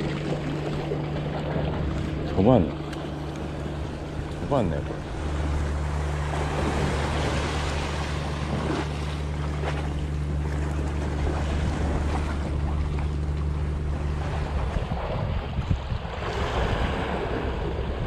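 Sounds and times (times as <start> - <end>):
boat engine drone: 0.0 - 18.0
sea washing against rocks: 0.0 - 18.0
wind on microphone: 3.5 - 18.0.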